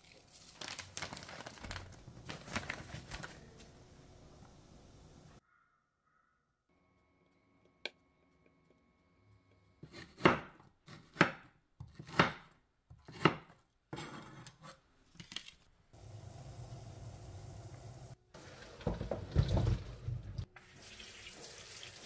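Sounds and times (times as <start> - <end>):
knife chopping on wooden board: 9.8 - 14.2
steady hiss: 16.0 - 18.2.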